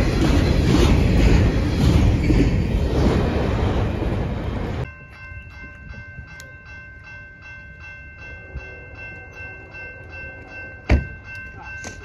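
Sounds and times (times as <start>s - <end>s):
freight train rumbling past: 0.0s - 11.7s
railroad crossing bell ringing: 4.6s - 12.0s.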